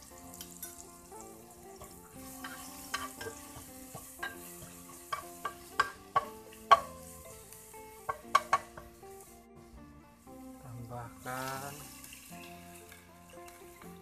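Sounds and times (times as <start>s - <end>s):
spice paste sizzling in oil: 0.0s - 14.0s
spoon clinking against pan: 1.8s - 7.0s, 8.1s - 8.9s.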